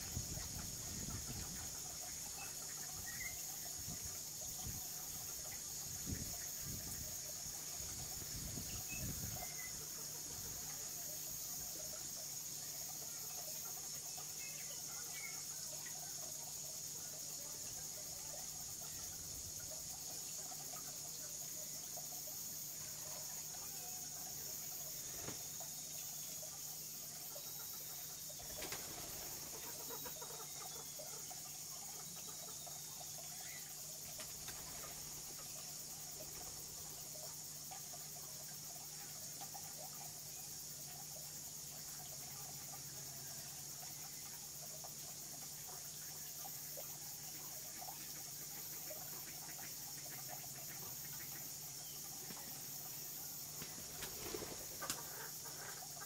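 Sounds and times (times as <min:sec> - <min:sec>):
insect drone: 0:00.0 - 0:56.0
steady high hiss: 0:00.0 - 0:56.0
faint ticks: 0:43.7 - 0:56.0.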